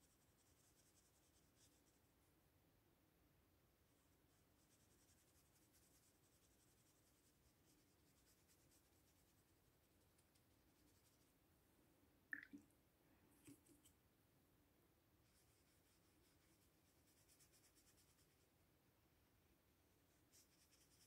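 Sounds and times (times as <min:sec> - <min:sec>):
brush stroking on paper: 0:00.0 - 0:02.1, 0:03.9 - 0:11.4, 0:15.2 - 0:18.5, 0:19.9 - 0:21.0.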